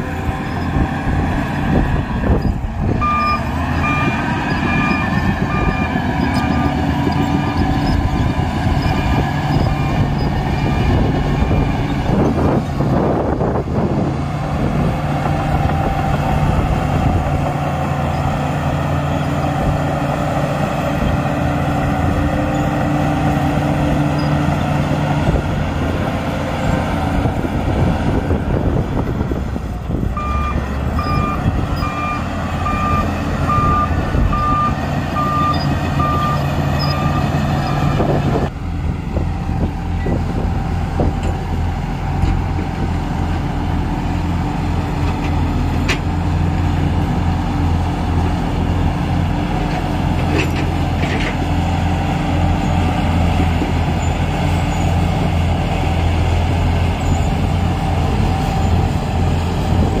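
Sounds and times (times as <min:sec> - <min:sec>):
bulldozer diesel engine: 0:00.0 - 1:00.0
reversing alarm beeps: 0:02.4 - 0:06.7, 0:30.2 - 0:38.1.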